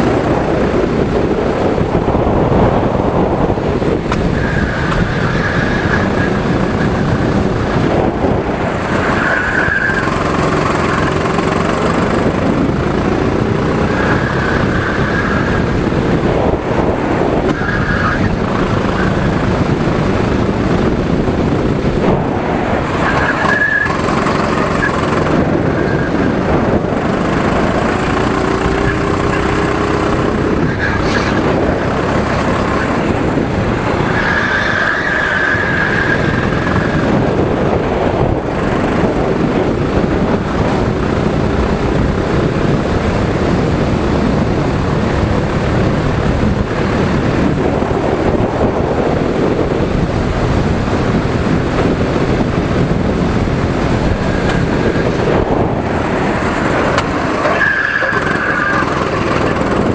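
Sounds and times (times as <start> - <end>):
car engine revving: 0.0 - 59.9
tyres squealing: 57.0 - 59.9.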